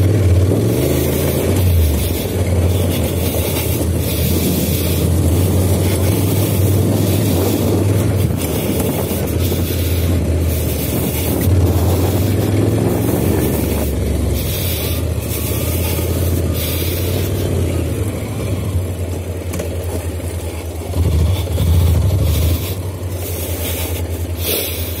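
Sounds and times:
motorcycle engine running: 0:00.0 - 0:25.0
wind rush: 0:03.8 - 0:14.0.

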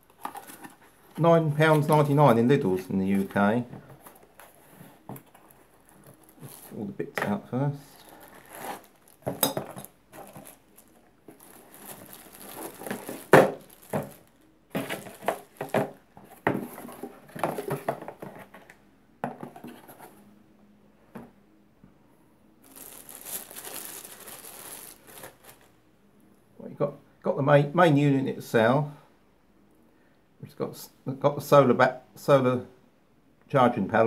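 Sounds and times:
plastic bags crinkling: 0:03.0 - 0:16.0, 0:22.6 - 0:25.7.

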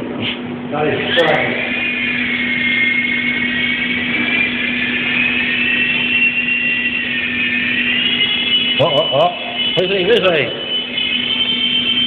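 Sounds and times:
toy helicopter rotor whine: 0:01.0 - 0:09.8, 0:10.7 - 0:12.0.

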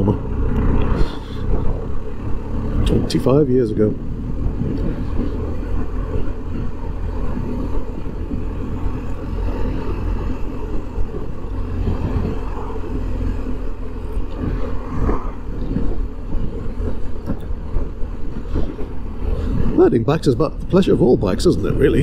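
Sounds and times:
motorcycle engine running: 0:00.0 - 0:22.0
tyre and road noise: 0:00.0 - 0:22.0.

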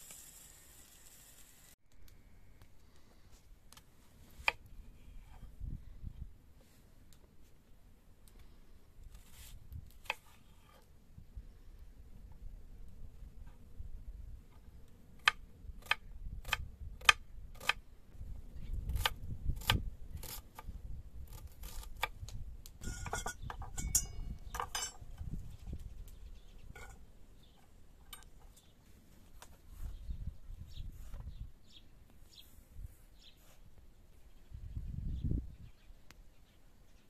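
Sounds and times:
metal clatter and clink: 0:22.8 - 0:25.1.

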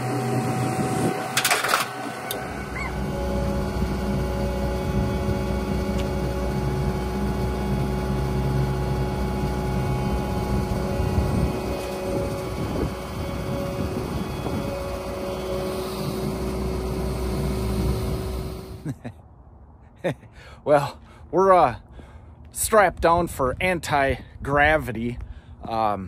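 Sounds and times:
hydraulic loader arms lifting: 0:00.0 - 0:18.8
diesel engine running: 0:00.0 - 0:18.9.

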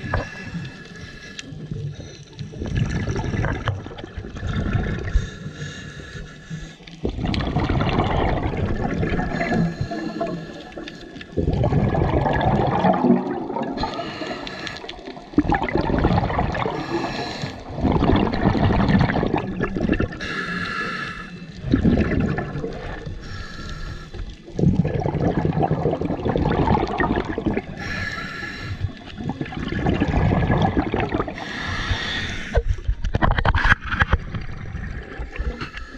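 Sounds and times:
bubbling regulator exhalations: 0:01.6 - 0:05.4, 0:07.0 - 0:20.4, 0:21.6 - 0:23.4, 0:24.4 - 0:35.9
hissing regulator inhalations: 0:05.1 - 0:07.0, 0:09.3 - 0:11.3, 0:13.8 - 0:15.2, 0:16.7 - 0:17.7, 0:20.2 - 0:21.6, 0:23.2 - 0:24.4, 0:27.8 - 0:29.2, 0:31.4 - 0:32.9.

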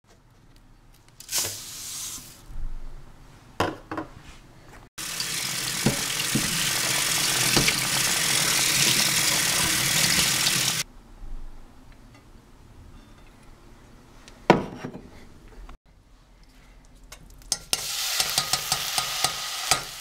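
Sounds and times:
tap water running into strainer: 0:05.0 - 0:10.8.

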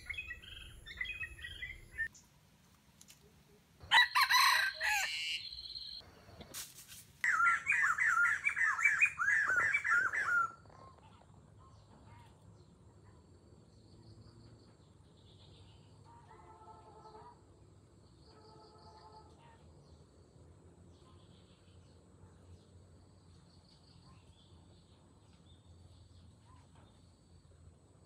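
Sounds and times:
bird chirping: 0:00.0 - 0:02.3, 0:04.6 - 0:06.5, 0:07.2 - 0:12.8
rooster crowing: 0:03.8 - 0:05.6.

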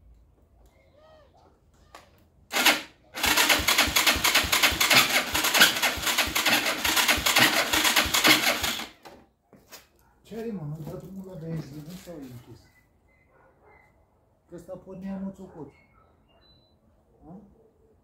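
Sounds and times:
electric starter cranking engine: 0:02.5 - 0:09.1.

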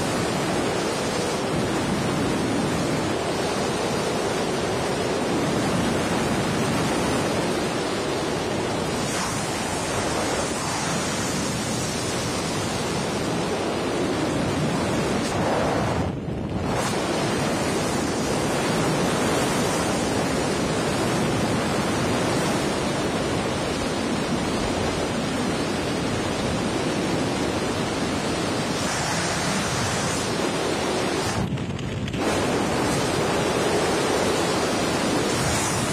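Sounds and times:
wind rushing across microphone: 0:00.0 - 0:35.9.

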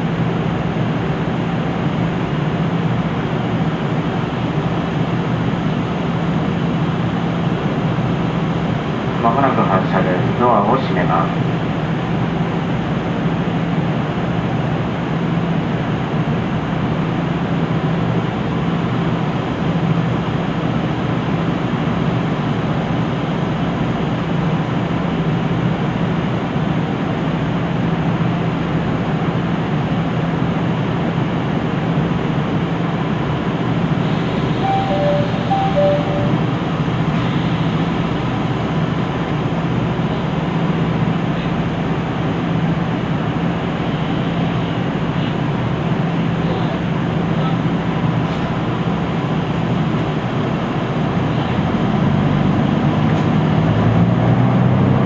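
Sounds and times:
diesel railcar engine idling: 0:00.0 - 0:53.9
short electronic beeps: 0:34.6 - 0:36.5.

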